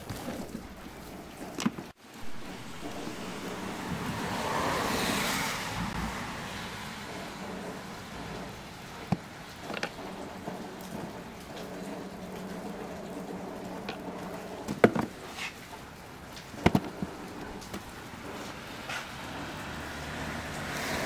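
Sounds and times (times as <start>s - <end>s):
plastic cover clicking and knocking: 9.0s - 11.1s, 13.8s - 15.2s, 16.6s - 17.8s.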